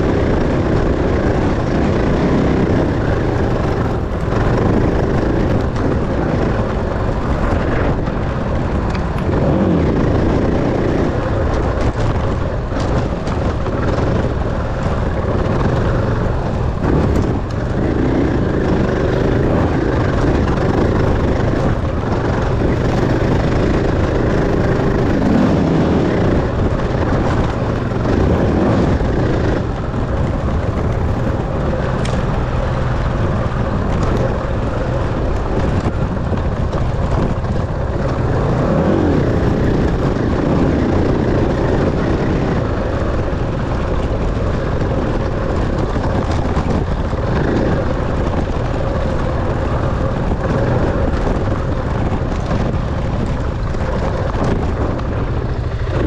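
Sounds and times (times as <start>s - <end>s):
dirt bike engine revving: 9.2s - 12.2s, 12.9s - 35.8s.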